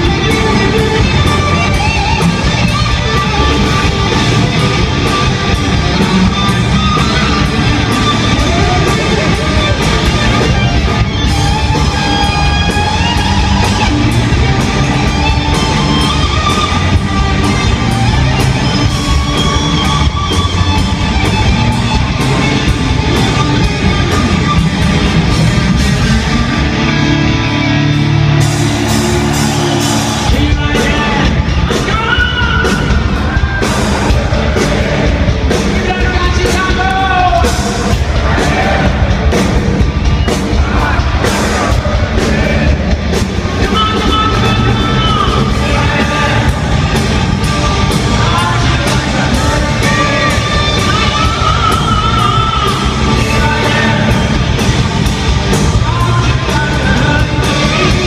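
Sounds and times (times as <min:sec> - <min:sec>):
live hard rock band: 0:00.0 - 0:58.0
person singing: 0:40.3 - 0:54.8, 0:55.5 - 0:58.0.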